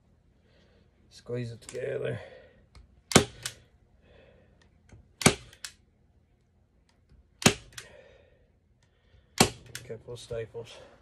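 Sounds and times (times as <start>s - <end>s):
staple gun snapping: 3.1s - 3.6s, 5.2s - 5.8s, 7.4s - 7.9s.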